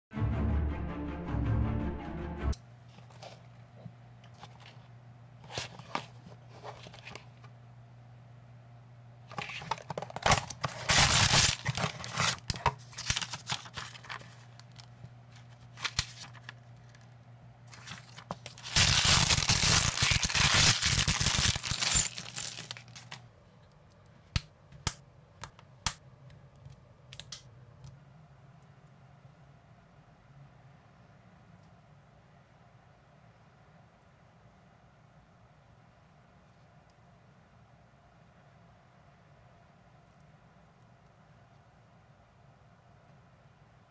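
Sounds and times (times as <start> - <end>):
packaging tearing and crinkling: 9.3 - 14.9, 15.8 - 16.6, 17.7 - 23.2
plastic pieces snapping together: 26.6 - 27.5.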